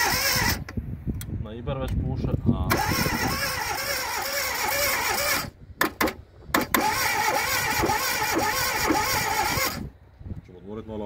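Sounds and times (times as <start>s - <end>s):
starter motor cranking engine: 0.0s - 0.7s, 2.7s - 9.9s.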